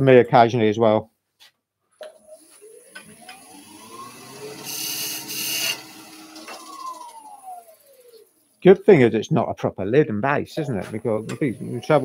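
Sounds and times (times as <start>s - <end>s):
lathe whine: 2.2s - 8.5s, 11.2s - 12.0s
turning tool cutting wood: 2.3s - 8.3s.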